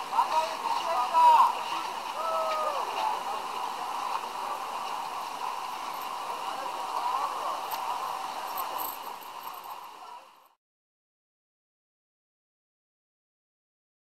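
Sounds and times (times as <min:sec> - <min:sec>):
pool-side crowd and water noise: 0:00.0 - 0:10.6
faint indistinct voices: 0:00.1 - 0:10.6.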